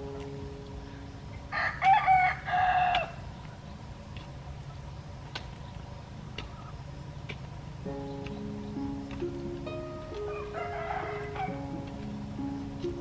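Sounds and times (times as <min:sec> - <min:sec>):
rooster crowing: 0:01.5 - 0:03.2, 0:10.2 - 0:11.8.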